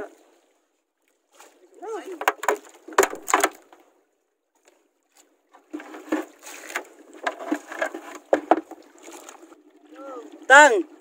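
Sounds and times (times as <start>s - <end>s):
water sloshing against boat: 0.0s - 11.0s
knocks on boat: 2.2s - 3.6s.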